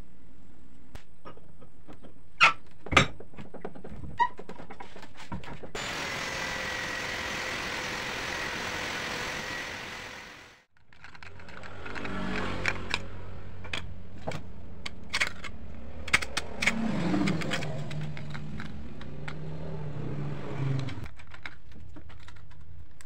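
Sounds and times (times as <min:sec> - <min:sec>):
angle grinder cutting steel rod: 0:05.8 - 0:10.6.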